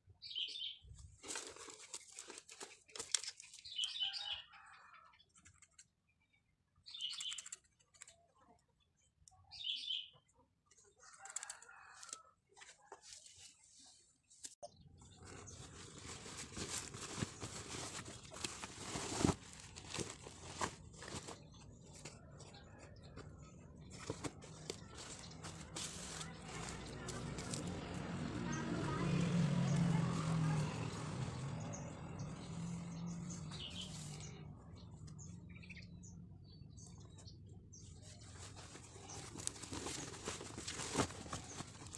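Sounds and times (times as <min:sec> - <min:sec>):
denim rustling: 0:15.2 - 0:21.4, 0:38.3 - 0:41.9
fabric rustling and rubbing: 0:15.2 - 0:21.4, 0:24.9 - 0:27.5.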